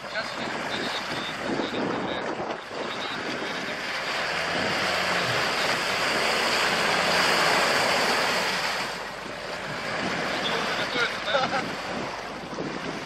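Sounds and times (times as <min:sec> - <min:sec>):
wheels churning water: 0:00.0 - 0:13.0
suv engine revving: 0:03.2 - 0:11.0.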